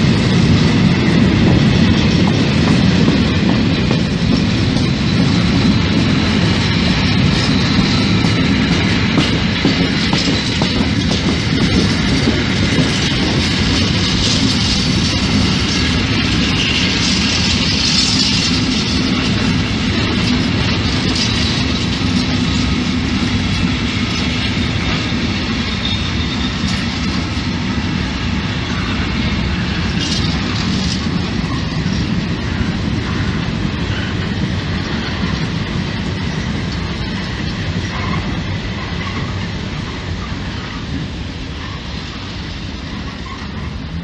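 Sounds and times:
rumble of train wheels on rail: 0.0 - 44.0
faint high wheel squeals: 25.6 - 26.8.

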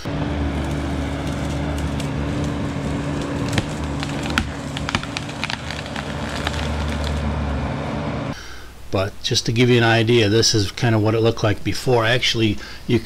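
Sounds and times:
excavator diesel engine running: 0.0 - 8.4
wood cracking and snapping: 0.4 - 7.4.

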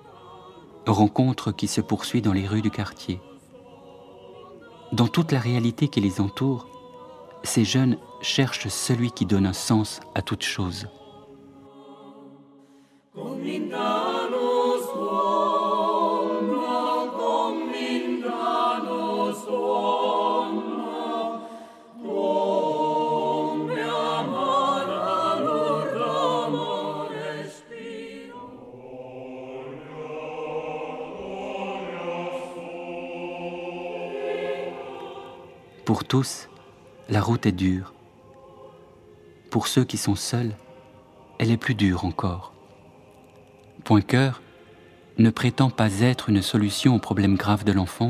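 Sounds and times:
choir singing: 0.0 - 48.0.

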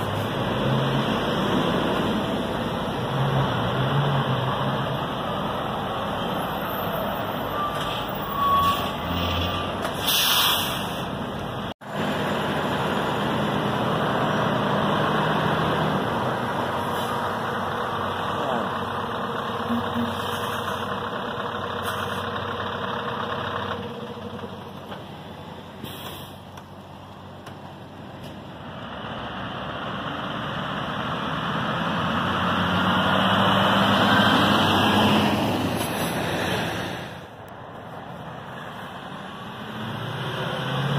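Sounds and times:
lorry diesel engines: 0.0 - 40.9
air brake hisses: 10.0 - 11.1, 25.8 - 26.4.

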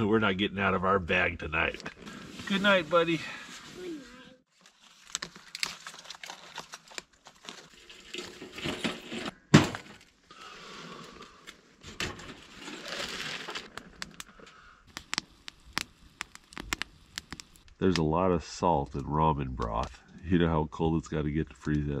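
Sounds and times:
crinkling and rustling gear: 4.5 - 10.2, 10.9 - 17.8
sharp clicks: 13.7 - 18.1.

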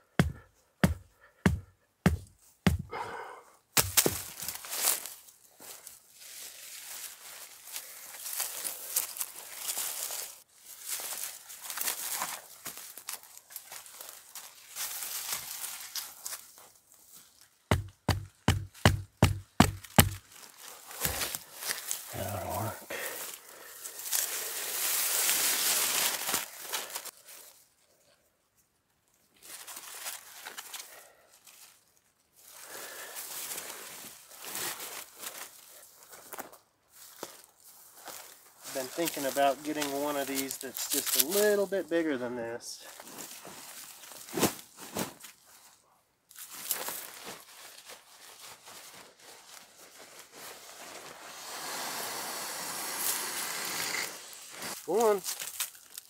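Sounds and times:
sharp knocks: 0.2 - 2.9, 17.7 - 20.2
crinkling rustle: 4.0 - 17.6, 20.2 - 32.6, 33.2 - 42.0, 42.8 - 51.3, 54.3 - 56.0.

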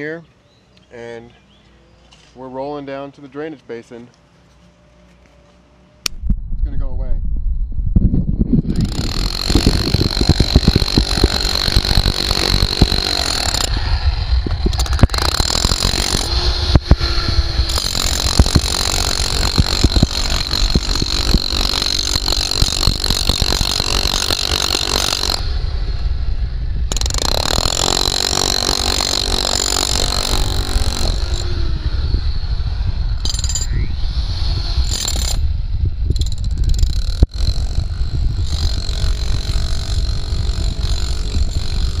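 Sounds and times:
low rumble: 6.1 - 23.8, 25.1 - 27.6
power tool rattling and whining: 8.6 - 25.7, 26.9 - 42.0.

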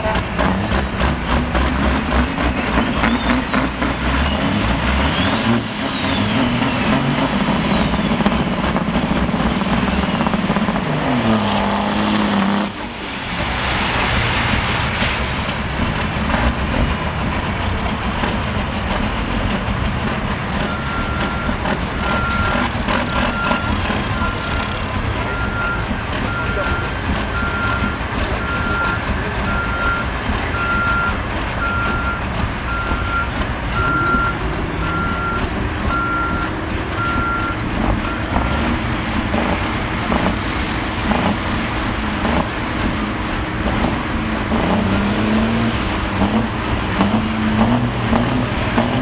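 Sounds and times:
diesel truck engines revving: 0.0 - 49.0
reversing alarm beeping: 20.6 - 38.7.

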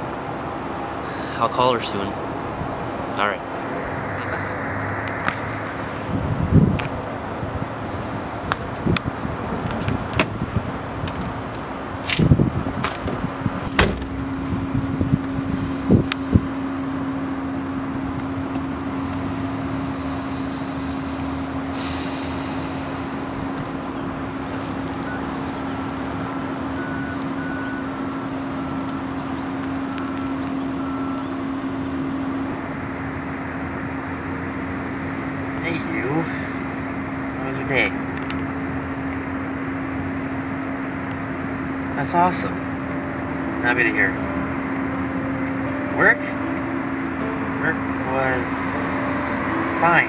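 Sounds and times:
steady low hum: 0.0 - 50.0
car door opening and shutting: 9.6 - 10.4, 12.1 - 14.7.

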